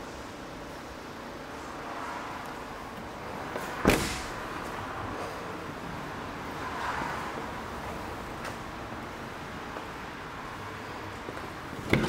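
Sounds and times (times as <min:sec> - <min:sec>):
steady background noise: 0:00.0 - 0:12.0
sharp thump: 0:03.8 - 0:04.3.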